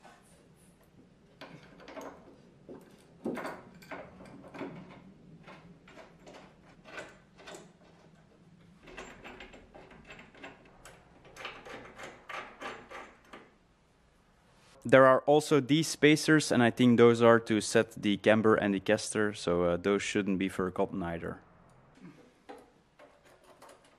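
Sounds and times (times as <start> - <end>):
metal brackets clicking and knocking: 1.3 - 13.6, 22.4 - 23.9.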